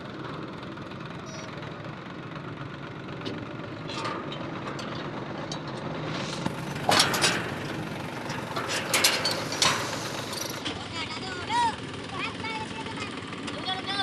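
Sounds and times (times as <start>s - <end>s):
tractor diesel engine idling: 0.0s - 14.0s
metal scraping clatter: 3.3s - 11.2s.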